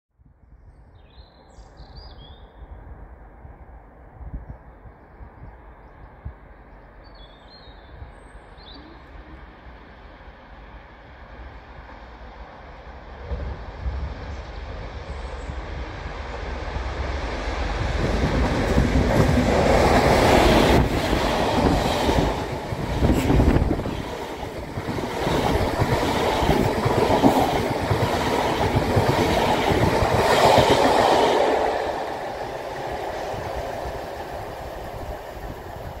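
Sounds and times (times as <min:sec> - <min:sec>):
locomotive rumble: 0:13.2 - 0:36.0
train wheels clattering over rail joints: 0:18.0 - 0:31.1.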